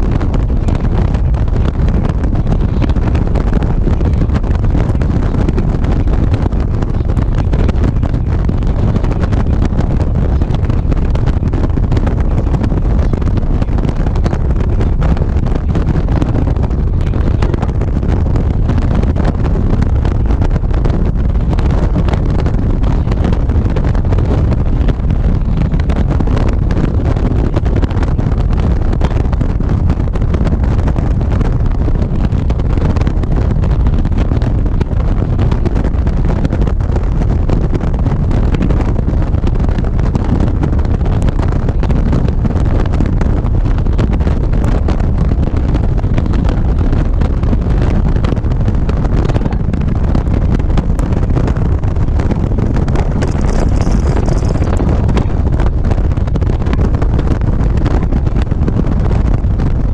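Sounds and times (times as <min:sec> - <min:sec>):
wind rushing over microphone: 0:00.0 - 0:59.9
motorcycle engine running: 0:51.6 - 0:56.9.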